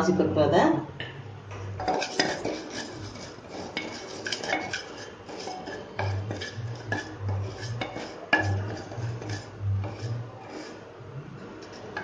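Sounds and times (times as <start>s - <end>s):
wooden spatula scraping a pot: 1.8s - 12.0s
low hum: 5.9s - 12.0s.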